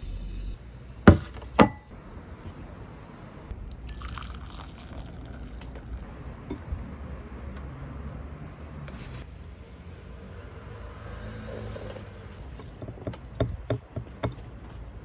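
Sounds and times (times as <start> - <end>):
soup pouring into bowl: 3.8 - 6.7.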